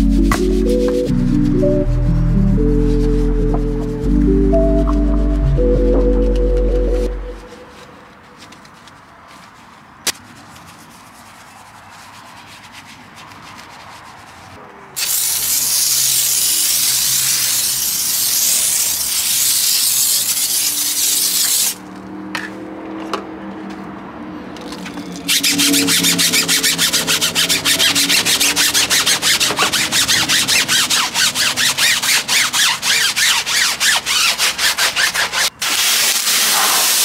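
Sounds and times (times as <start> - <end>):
brush scrubbing wet wheel: 7.6 - 21.9, 25.2 - 37.0
foam sprayer hissing: 15.0 - 21.8, 35.6 - 37.0.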